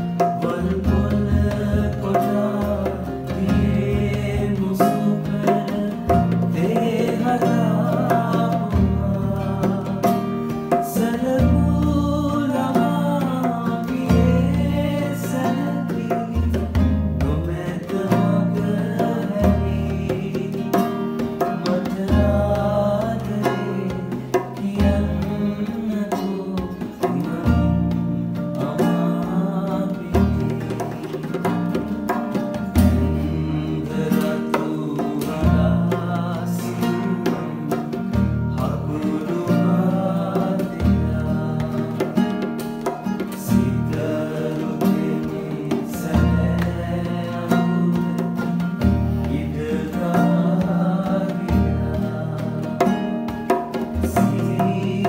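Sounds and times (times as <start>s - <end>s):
man singing slow song: 0.0s - 31.5s, 32.8s - 55.0s
strummed classical guitar: 0.0s - 55.0s.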